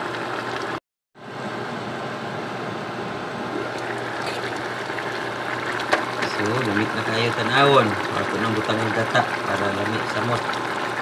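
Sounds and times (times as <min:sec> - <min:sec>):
pot simmering with bubbling hiss: 0:00.0 - 0:00.8, 0:03.4 - 0:11.0
liquid pouring into pot: 0:03.6 - 0:11.0.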